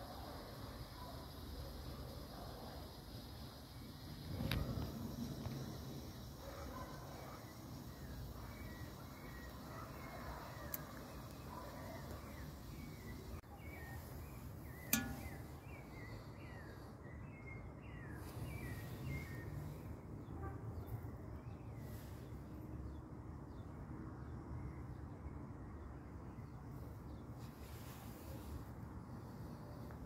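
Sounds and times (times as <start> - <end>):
sharp click: 14.9 - 15.4.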